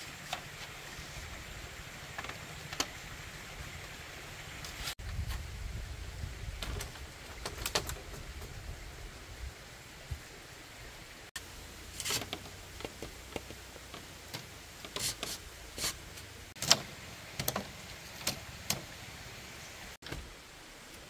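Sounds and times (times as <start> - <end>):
bamboo strips clacking and scraping: 0.0 - 5.4, 6.6 - 8.6, 11.4 - 19.1.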